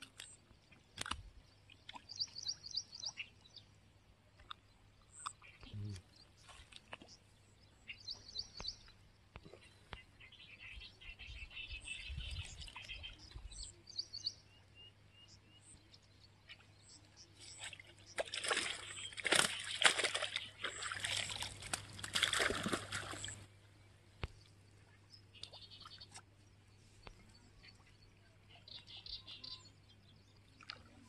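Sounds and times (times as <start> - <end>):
water splashing and sloshing: 0.0 - 3.5, 6.2 - 7.5, 17.3 - 27.9, 30.4 - 31.0.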